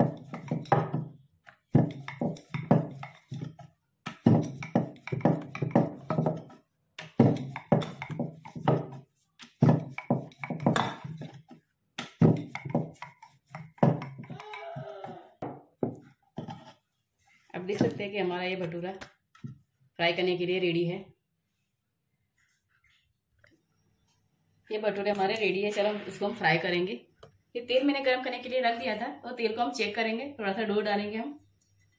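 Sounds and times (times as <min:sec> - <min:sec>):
rolling pin rolling dough on board: 0:00.0 - 0:14.4.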